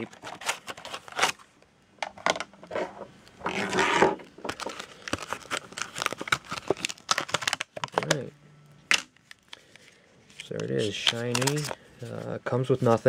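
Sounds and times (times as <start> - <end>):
plastic packaging crinkling: 3.4 - 8.3, 8.9 - 12.2.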